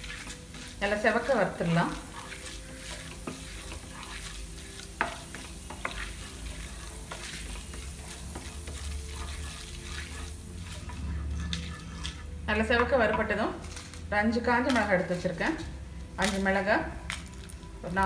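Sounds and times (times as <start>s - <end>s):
wooden spatula scraping a pan: 0.0s - 14.0s
lentils sizzling in oil: 0.0s - 18.0s.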